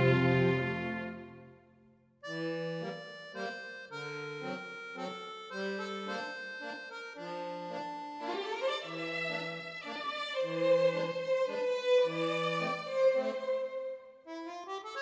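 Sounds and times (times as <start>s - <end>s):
background music with held chords: 0.0s - 1.5s.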